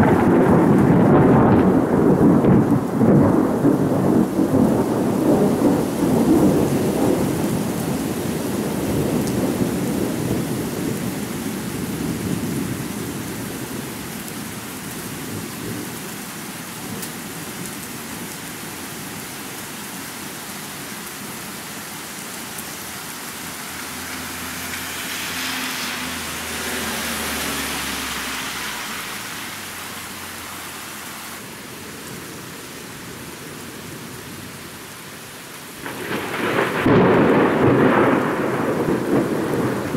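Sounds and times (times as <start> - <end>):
thunder rolling: 0.0 - 11.3, 35.8 - 39.9
steady rain: 0.0 - 39.9.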